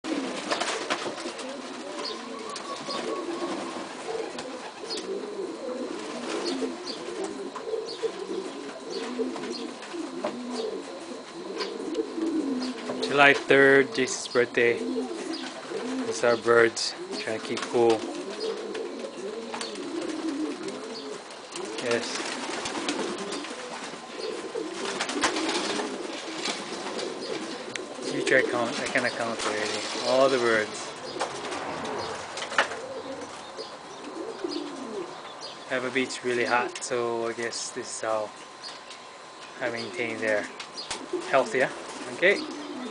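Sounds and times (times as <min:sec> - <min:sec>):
pigeons cooing: 0:00.0 - 0:42.9
wings flapping: 0:00.1 - 0:13.6, 0:17.1 - 0:33.5, 0:40.0 - 0:42.9.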